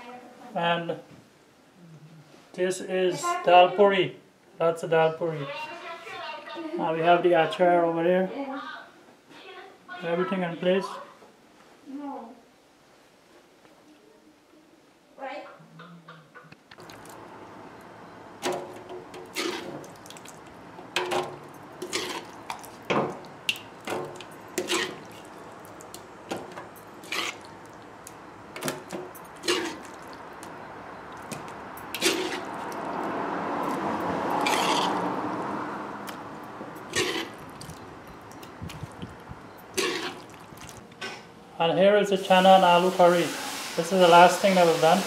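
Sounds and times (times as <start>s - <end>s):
spoon scraping a metal pot: 18.8s - 19.9s, 21.0s - 22.7s, 24.1s - 25.3s, 26.7s - 27.5s, 29.4s - 30.0s, 31.9s - 32.7s, 34.3s - 35.1s, 36.8s - 37.4s, 39.6s - 40.4s
wet sliding scrape: 19.2s - 20.4s, 21.8s - 22.9s, 24.6s - 25.9s, 27.0s - 27.8s, 29.4s - 30.5s, 31.1s - 35.2s, 36.9s - 39.0s, 39.8s - 41.2s.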